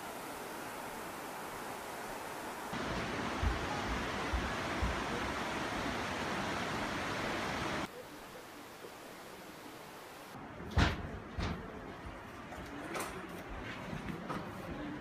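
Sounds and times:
stream water rushing: 0.0 - 10.4.

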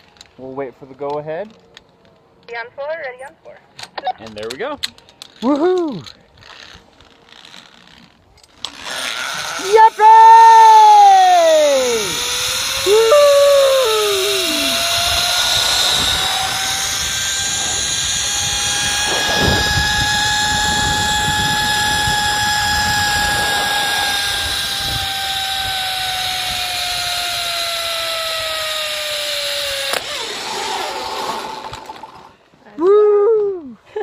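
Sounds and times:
zipline pulleys whining: 5.5 - 32.4
wind on microphone: 9.9 - 27.6.

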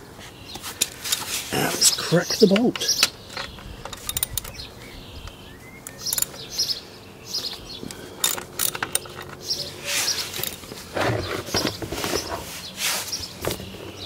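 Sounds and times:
birds chirping: 0.0 - 14.0
socket wrench metallic clicks: 2.4 - 4.6.

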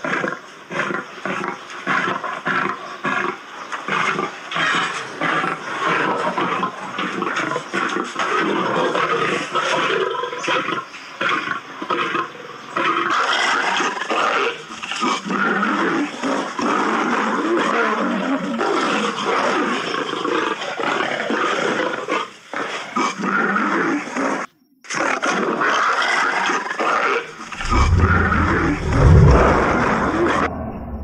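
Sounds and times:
lions growling and snarling: 0.0 - 31.0.

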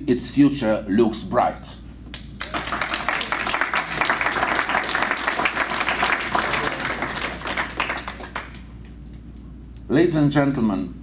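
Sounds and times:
audience applauding: 2.4 - 8.7.

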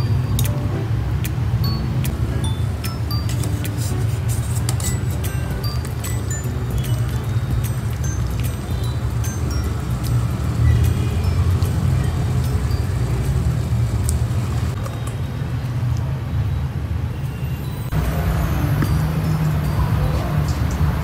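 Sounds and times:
tongs clinking against metal bowl: 1.7 - 13.4
water boiling in a pot: 2.4 - 14.8.

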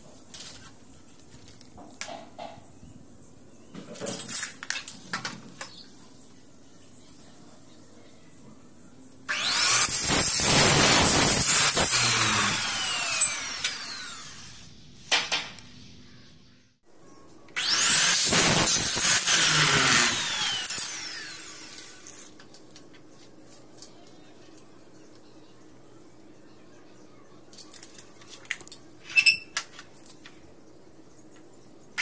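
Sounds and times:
mitre saw cutting metal: 9.3 - 14.7, 17.6 - 22.3
saw motor winding down: 9.3 - 14.7, 17.6 - 22.3.

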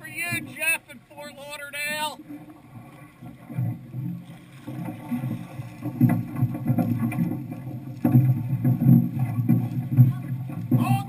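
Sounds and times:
low uneven rumble: 0.0 - 11.0
water splashing: 0.0 - 11.0
sharp knocks: 3.5 - 11.0.

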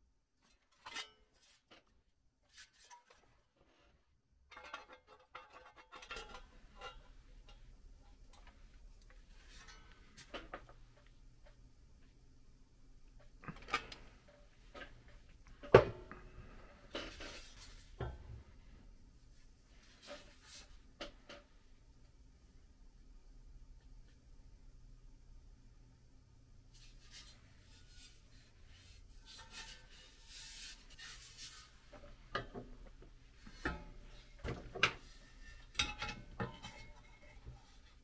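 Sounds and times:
hand tool clanking on metal: 35.6 - 37.3.

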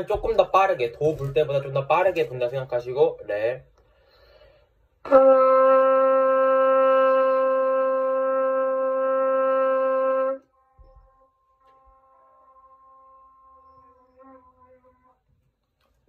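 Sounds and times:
trumpet holding long note: 5.0 - 15.6.

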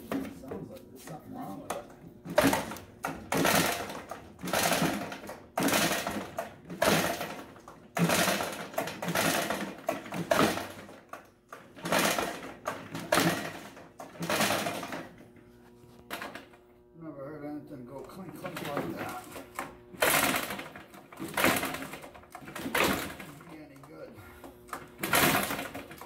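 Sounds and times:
recoil starter cord pulls: 2.3 - 15.2, 18.1 - 23.9, 24.7 - 26.0.

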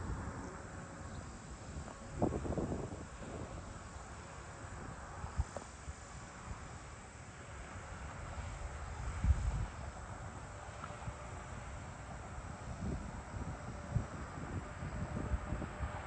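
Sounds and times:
wind buffeting microphone: 0.0 - 3.9, 8.5 - 10.1, 12.1 - 16.0
insects chirping: 0.1 - 7.3.

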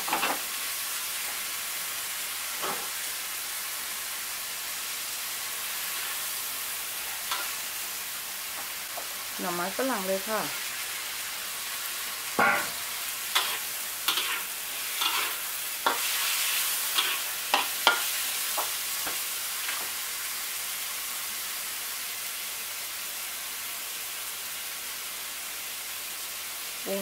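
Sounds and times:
food sizzling in a wok: 0.0 - 27.0
metal spatula scraping a pan: 12.4 - 18.2.

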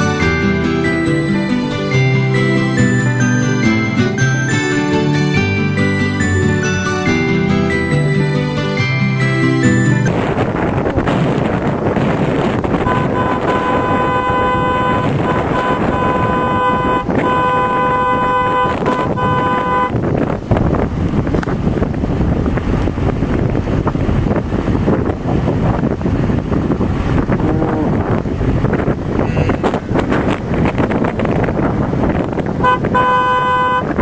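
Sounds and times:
wind noise on microphone: 0.0 - 34.0
horn tooting: 10.0 - 20.3, 29.2 - 30.3, 32.6 - 34.0.

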